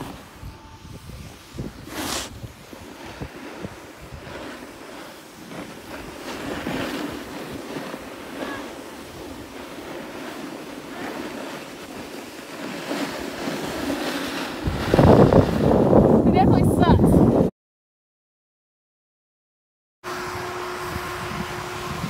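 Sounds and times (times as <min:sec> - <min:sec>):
sliding down snow slope: 0:00.0 - 0:17.5
wind buffeting microphone: 0:00.0 - 0:17.5, 0:20.2 - 0:22.0.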